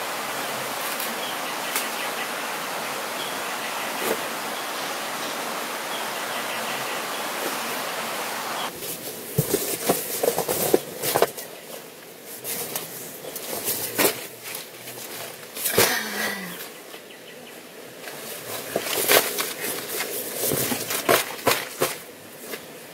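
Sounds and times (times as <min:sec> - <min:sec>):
steady outdoor hiss: 0:00.0 - 0:22.9.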